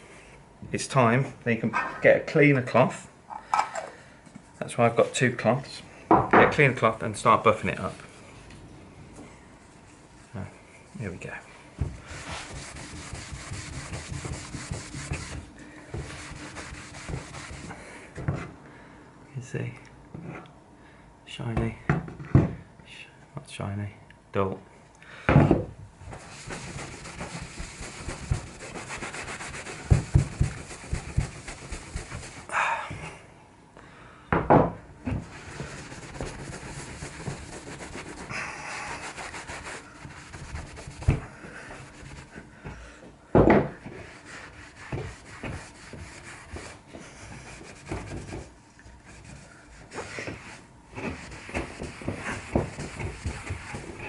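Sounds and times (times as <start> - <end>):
cloth rubbing on wood: 9.6 - 18.5, 26.1 - 32.5, 35.1 - 42.4, 43.8 - 54.0.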